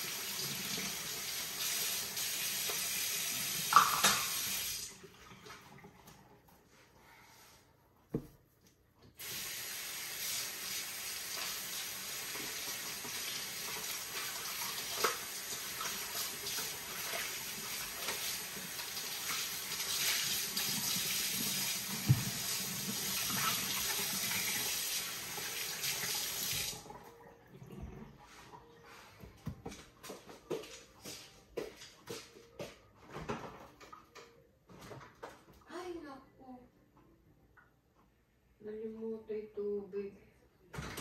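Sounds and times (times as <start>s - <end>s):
faucet water running into sink: 0.0s - 6.0s, 9.2s - 28.0s
small knocks in sink: 8.1s - 8.4s.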